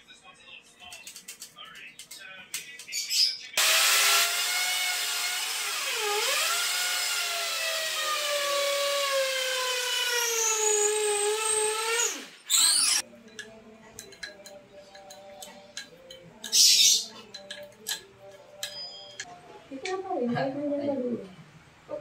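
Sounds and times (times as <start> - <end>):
electric drill whining: 3.6 - 13.0.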